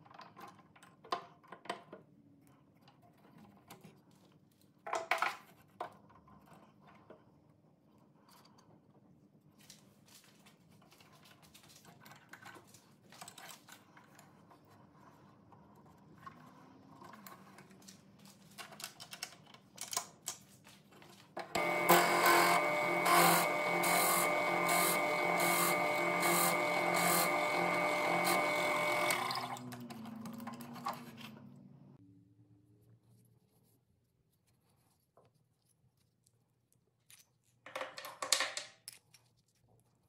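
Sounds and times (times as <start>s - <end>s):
drill bit boring into wood: 21.5s - 29.6s
drill press motor running: 21.5s - 31.0s.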